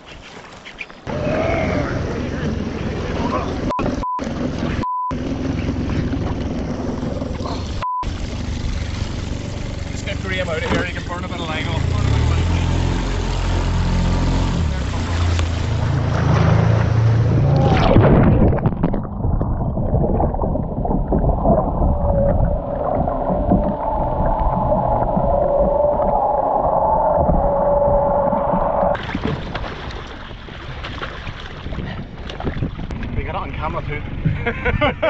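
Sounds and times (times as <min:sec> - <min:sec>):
wind: 0:00.0 - 0:35.0
underwater gurgling and rushing water: 0:01.9 - 0:12.3, 0:12.9 - 0:33.2
loud splashing: 0:08.0 - 0:32.8.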